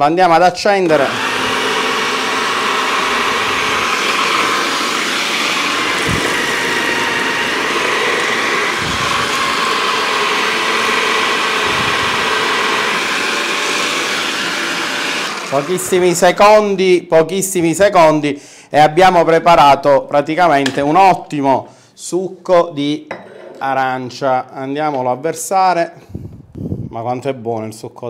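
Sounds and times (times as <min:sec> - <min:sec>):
juicer motor running: 0:00.8 - 0:16.2.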